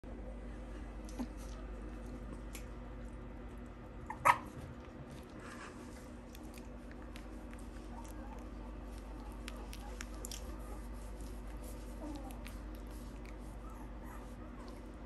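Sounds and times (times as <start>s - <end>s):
steady low hum: 0.0s - 15.0s
puppy yipping: 4.1s - 4.6s.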